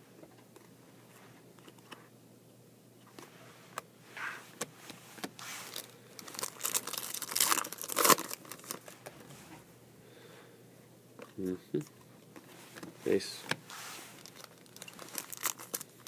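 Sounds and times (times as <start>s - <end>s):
foil wrapper crinkling and tearing: 5.6s - 9.0s, 14.1s - 16.0s.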